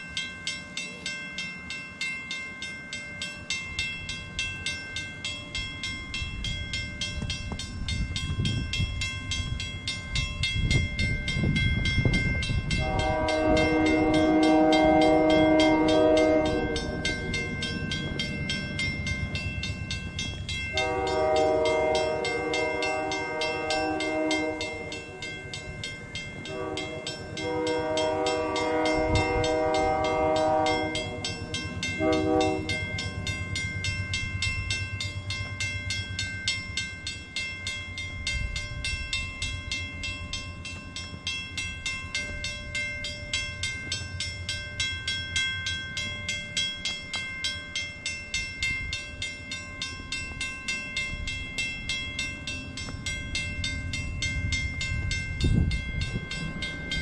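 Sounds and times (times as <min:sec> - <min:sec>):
crossing bell dinging: 0:00.0 - 0:57.0
train rumble: 0:00.0 - 0:57.0
locomotive horn blasts: 0:12.7 - 0:17.5, 0:20.7 - 0:25.3, 0:26.4 - 0:31.3, 0:31.9 - 0:33.1.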